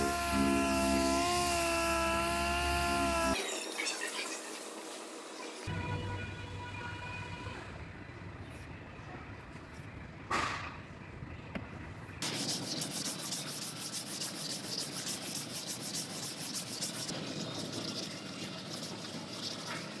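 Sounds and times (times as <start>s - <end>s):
sanding rasping scrub: 12.2s - 20.0s.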